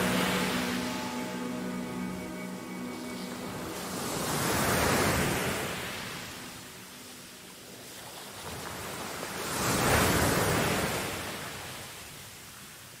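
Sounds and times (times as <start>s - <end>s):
small waves washing onto sand: 3.7s - 13.0s.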